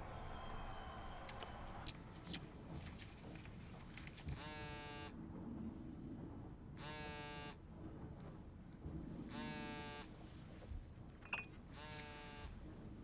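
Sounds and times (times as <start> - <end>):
mobile phone buzzing: 11.8 - 12.5.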